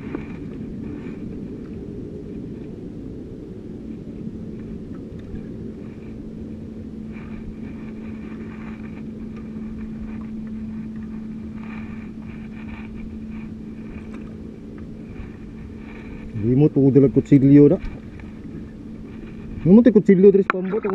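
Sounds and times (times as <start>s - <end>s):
light clicks and rustles: 0.0s - 2.8s, 7.1s - 20.9s
boat engine humming: 0.0s - 20.9s.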